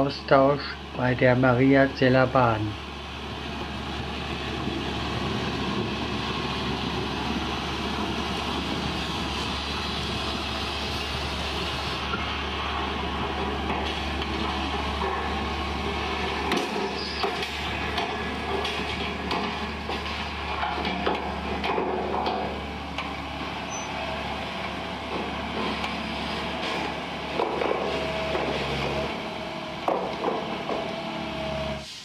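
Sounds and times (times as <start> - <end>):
diesel engine running: 0.0 - 32.0
sharp knocks: 29.8 - 30.9.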